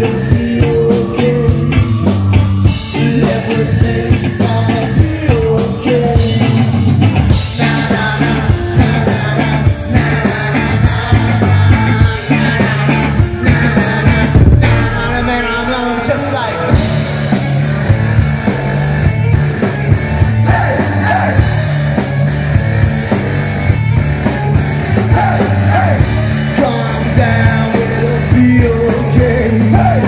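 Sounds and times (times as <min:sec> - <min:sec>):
person singing: 0:00.0 - 0:01.9, 0:02.7 - 0:06.6, 0:07.4 - 0:17.1, 0:20.4 - 0:22.1, 0:25.1 - 0:30.0
drums with cymbal strokes: 0:00.0 - 0:15.7, 0:16.7 - 0:30.0
bass guitar: 0:00.0 - 0:30.0
electric guitars: 0:00.0 - 0:30.0.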